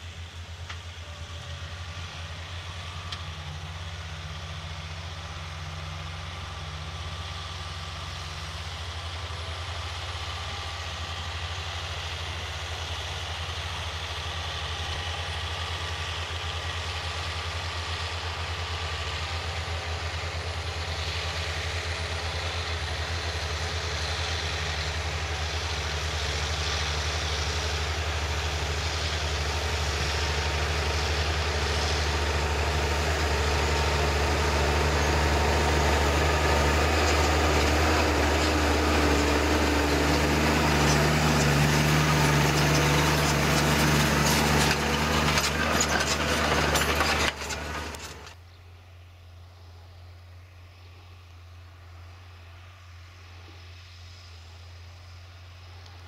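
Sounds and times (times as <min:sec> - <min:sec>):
tractor diesel engine under load: 0:00.0 - 0:48.5.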